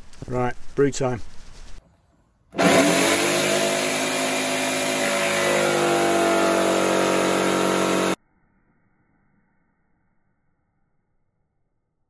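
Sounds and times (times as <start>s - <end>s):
motor running steadily: 2.6s - 8.2s.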